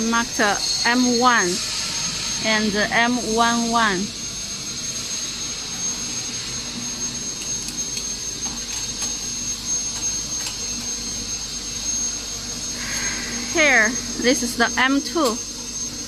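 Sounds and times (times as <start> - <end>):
high-pitched whine: 0.0 - 16.0
machine hum and hiss: 0.0 - 16.0.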